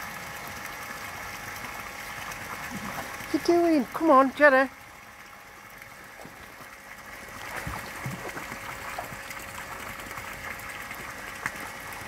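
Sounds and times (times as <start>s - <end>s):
dogs splashing in water: 1.7s - 4.2s, 5.6s - 12.0s.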